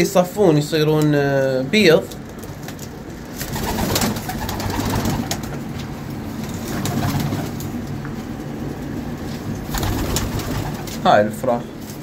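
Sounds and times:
pigeons cooing: 0:03.4 - 0:05.5.

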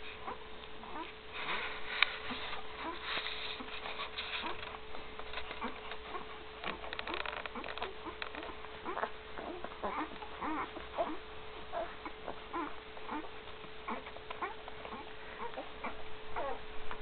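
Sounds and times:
puppies squeaking and grunting: 0:00.0 - 0:17.0
steady hum: 0:00.0 - 0:17.0.

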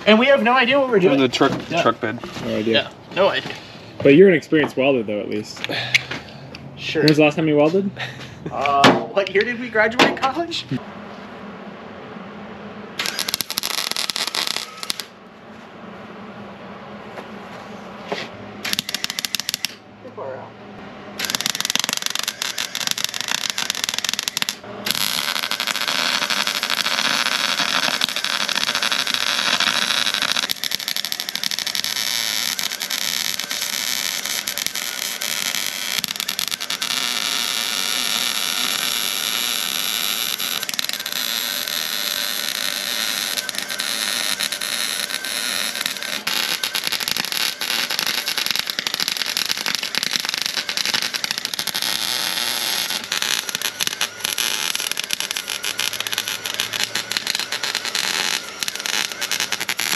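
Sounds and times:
welder arc crackling: 0:13.0 - 0:15.2, 0:18.2 - 0:19.8, 0:21.2 - 0:59.9.

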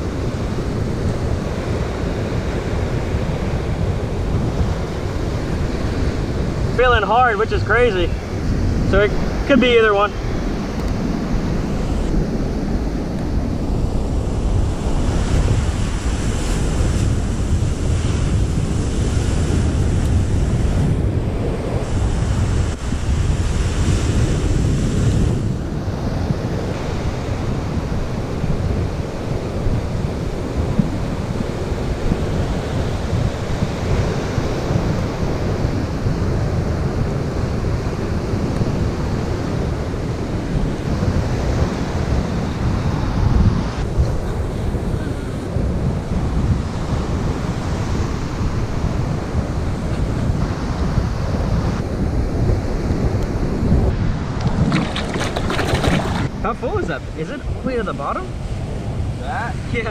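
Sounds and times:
surf breaking on beach: 0:00.0 - 0:59.9
wind buffeting microphone: 0:00.0 - 0:59.9.

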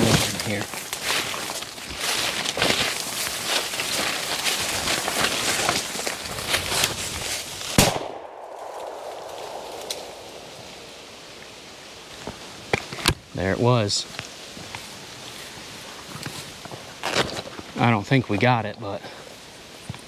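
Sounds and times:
dry leaves rustling underfoot: 0:00.0 - 0:18.6
shotgun shot: 0:07.8 - 0:11.0.

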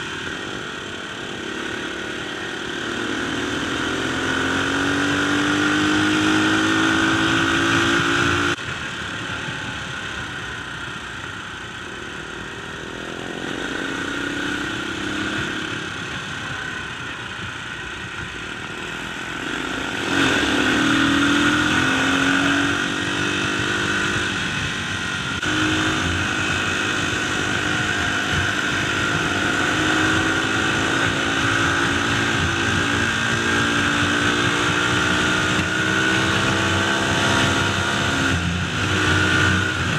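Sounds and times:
dirt bike engine revving: 0:00.0 - 0:08.6, 0:18.7 - 0:39.9.

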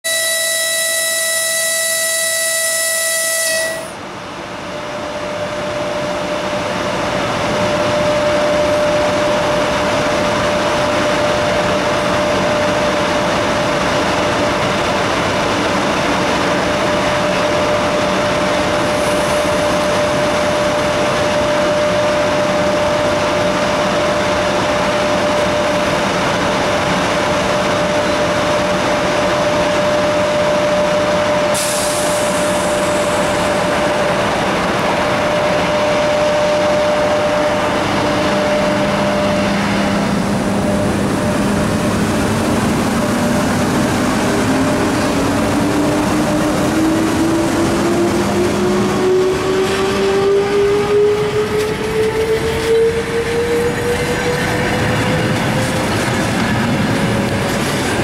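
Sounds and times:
locomotive horn blast: 0:00.0 - 0:04.0
locomotive rushing noise: 0:00.8 - 0:58.0.

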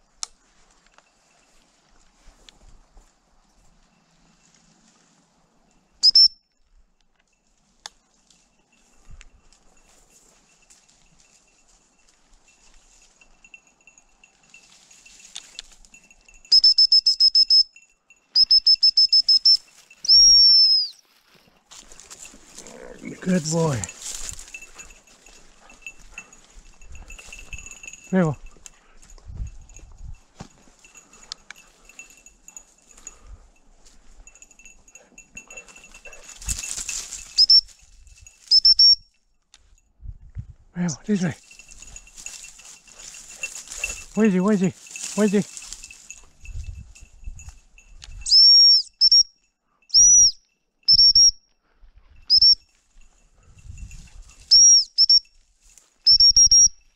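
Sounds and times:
faint high jingling: 0:00.0 - 0:40.0, 0:40.8 - 0:56.9
dog whistle pips and blast: 0:06.0 - 0:06.4, 0:16.5 - 0:17.7, 0:18.4 - 0:21.0, 0:37.4 - 0:37.7, 0:38.5 - 0:39.0, 0:48.2 - 0:49.3, 0:49.9 - 0:51.4, 0:52.3 - 0:52.6, 0:54.5 - 0:55.2, 0:56.1 - 0:56.8.

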